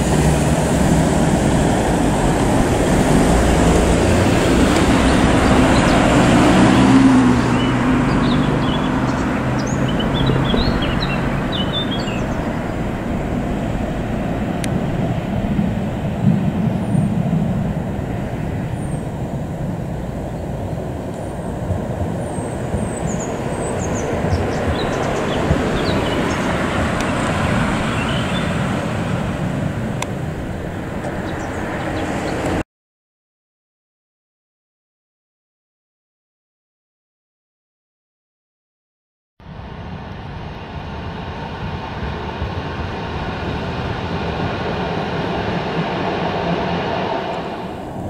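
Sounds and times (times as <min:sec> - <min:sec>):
tram rumbling: 0:00.0 - 0:32.6, 0:39.6 - 0:48.0
small birds chirping: 0:07.4 - 0:13.0, 0:19.9 - 0:28.7, 0:30.7 - 0:32.5.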